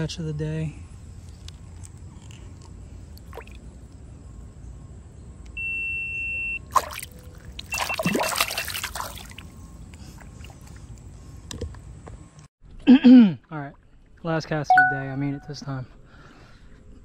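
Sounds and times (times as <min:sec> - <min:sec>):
water splashing and trickling: 0:03.1 - 0:03.8, 0:06.6 - 0:11.0
electronic beep: 0:07.7 - 0:08.4, 0:14.7 - 0:15.5.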